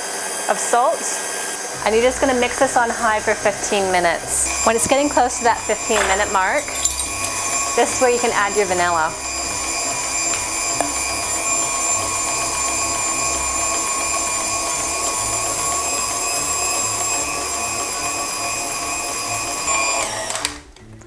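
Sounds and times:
stand mixer motor whine: 0:00.0 - 0:20.6.

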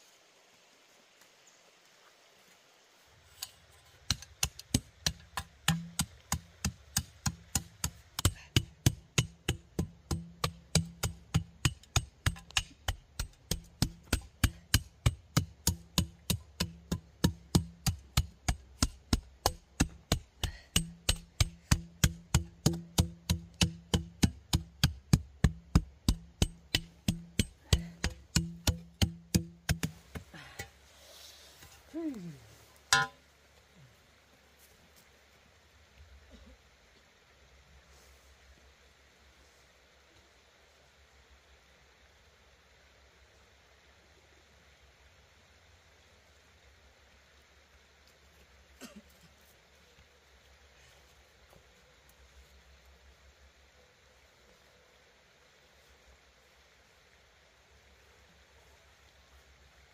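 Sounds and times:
low steady hum: 0:03.3 - 0:59.9
hand tool striking wood: 0:03.4 - 0:30.8, 0:32.9 - 0:33.2.

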